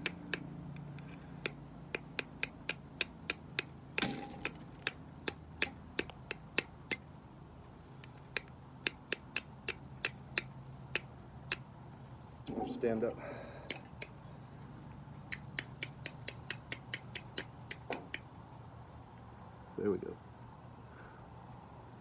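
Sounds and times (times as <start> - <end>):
steel striking flint clicks: 0.0 - 7.0, 8.0 - 11.6, 15.3 - 18.2.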